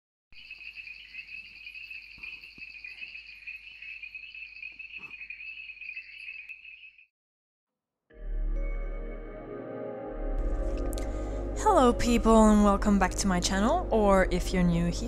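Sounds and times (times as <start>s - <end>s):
crickets chirping: 0.4s - 7.0s.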